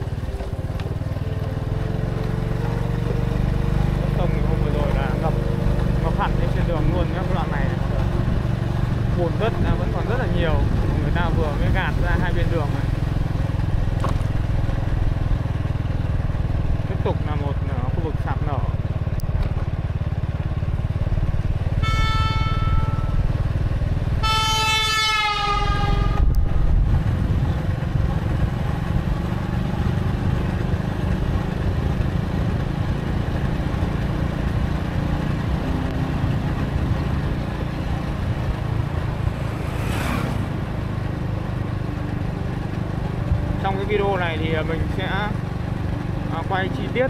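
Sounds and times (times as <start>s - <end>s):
motorcycle rumble: 0.0s - 47.0s
vehicle horn honking: 21.8s - 23.5s, 24.2s - 26.3s.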